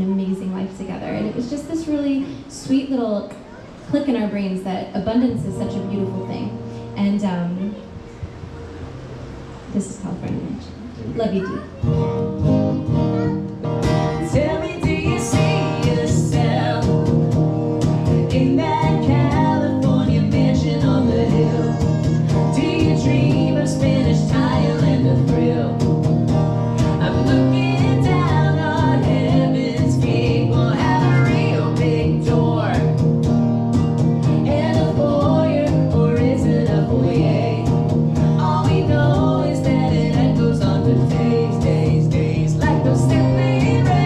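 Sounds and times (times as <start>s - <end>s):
strummed acoustic guitar: 11.2s - 44.0s
woman singing: 14.1s - 17.3s, 18.0s - 26.1s, 26.8s - 33.0s, 34.4s - 44.0s.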